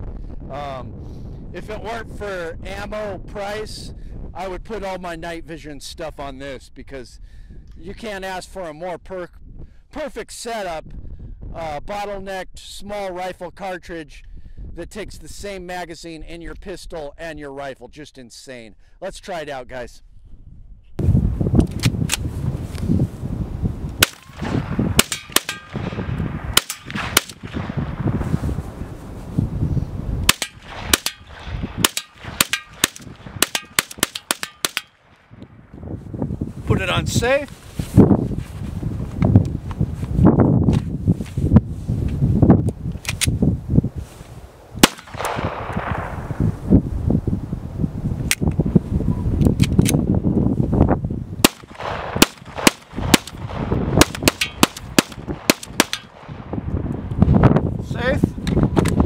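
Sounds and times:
wind buffeting microphone: 0:00.0 - 0:09.9, 0:10.7 - 0:12.4, 0:20.1 - 0:59.0
rapid gunshots: 0:24.0 - 0:27.8, 0:30.3 - 0:35.0, 0:51.4 - 0:56.2.

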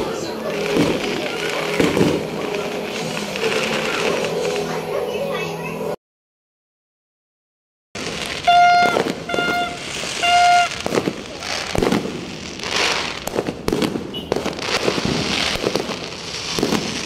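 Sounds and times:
fireworks bangs and crackling: 0:00.0 - 0:05.9, 0:08.0 - 0:17.0
high-pitched horn toots: 0:08.4 - 0:10.9.

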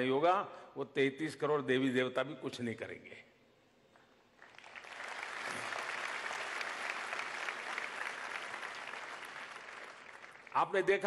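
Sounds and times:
audience applause: 0:04.4 - 0:10.6.

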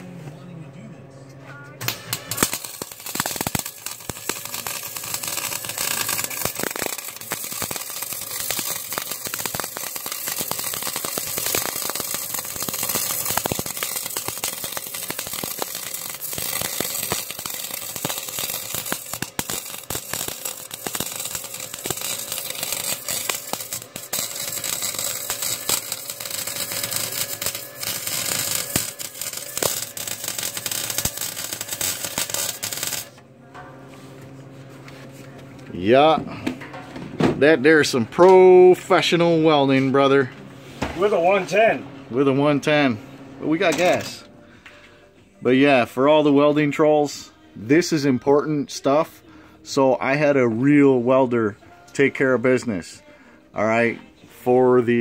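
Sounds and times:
welding arc crackling sizzle: 0:01.8 - 0:33.2, 0:41.0 - 0:44.3.

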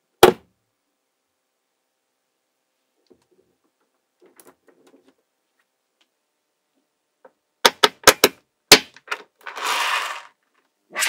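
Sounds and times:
balls clattering rattle: 0:09.0 - 0:10.7.

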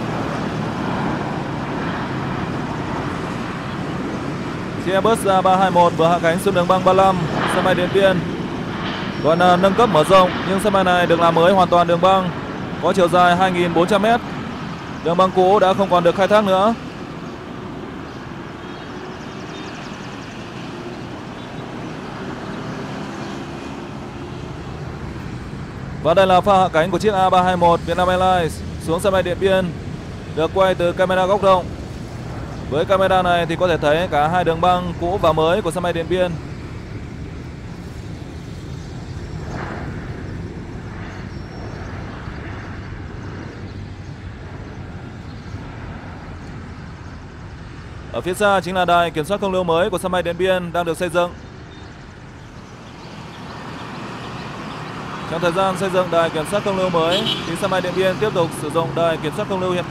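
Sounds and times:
jet engine rumble: 0:00.0 - 0:59.9.

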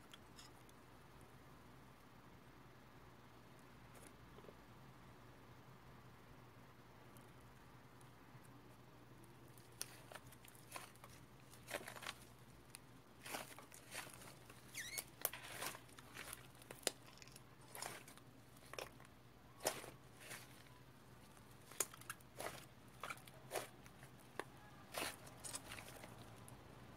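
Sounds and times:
slime crackling and popping: 0:09.8 - 0:19.0, 0:19.6 - 0:26.3
slime squeak: 0:13.3 - 0:16.3, 0:21.6 - 0:26.3.

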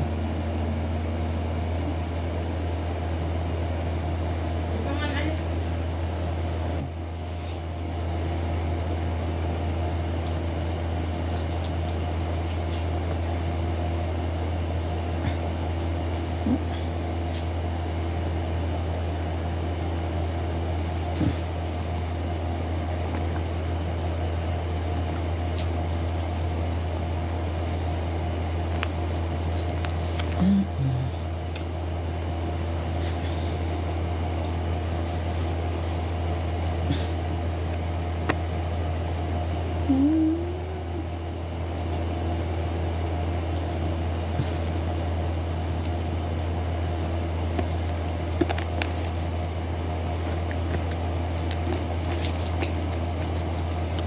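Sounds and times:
low hum: 0:00.0 - 0:54.0
plastic sticker sheets crinkling: 0:07.2 - 0:14.0, 0:20.7 - 0:30.5, 0:41.6 - 0:54.0.

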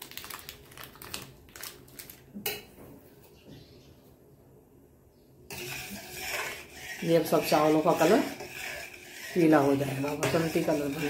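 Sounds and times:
knife stirring rice in water: 0:05.5 - 0:11.0
swishing and scraping in pan: 0:05.5 - 0:11.0.

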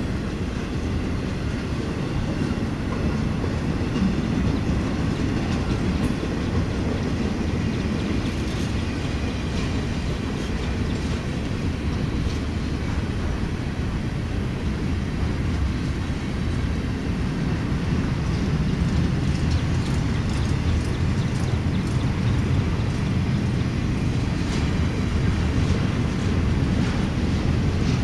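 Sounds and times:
freight train wheels rumbling: 0:00.0 - 0:28.0.

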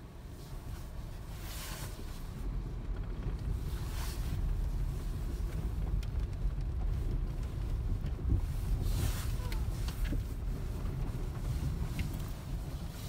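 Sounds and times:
car rumbling on snow with chains: 0:00.5 - 0:13.0.

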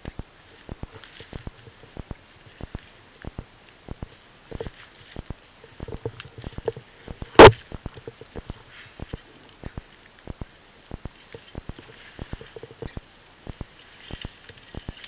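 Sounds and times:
loud bump against camera: 0:07.4 - 0:07.6.

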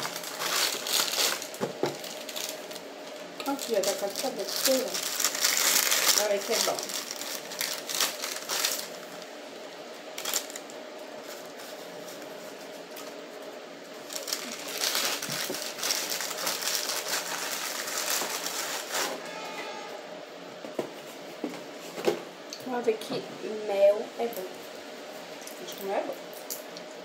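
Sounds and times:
plastic bag crinkling: 0:00.0 - 0:09.4, 0:10.1 - 0:13.2, 0:13.9 - 0:19.2.

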